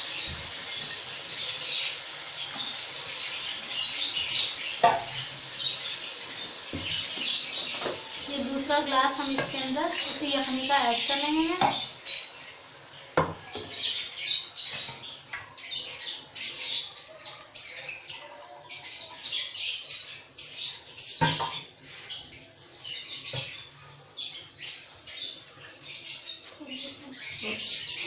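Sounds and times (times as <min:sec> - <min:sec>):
small birds chirping: 0:00.0 - 0:28.0
kitchen utensils knocking: 0:04.8 - 0:05.2, 0:21.2 - 0:21.7.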